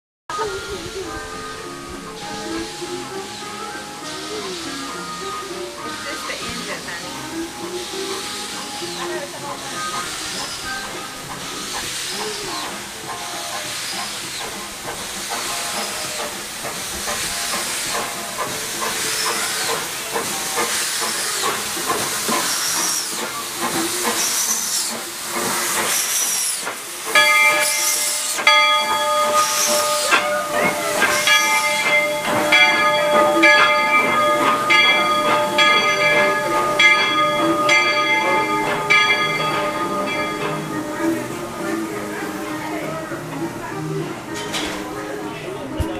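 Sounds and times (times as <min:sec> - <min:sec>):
rail cars rolling: 0:00.3 - 0:45.9
steam locomotive chuffing: 0:00.3 - 0:45.9
locomotive bell ringing: 0:27.0 - 0:45.6.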